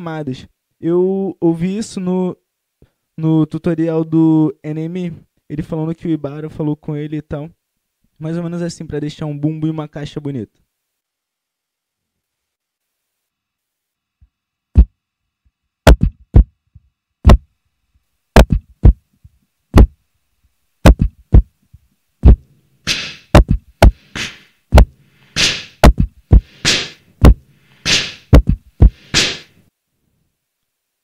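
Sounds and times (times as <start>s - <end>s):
beatboxed kick drum: 14.8s - 15.0s, 15.9s - 16.6s, 17.2s - 17.5s, 18.4s - 20.0s, 20.8s - 21.6s, 22.2s - 29.5s
hissy beatboxed snare: 15.9s - 16.5s, 18.4s - 19.0s, 20.8s - 21.5s, 22.2s - 29.6s.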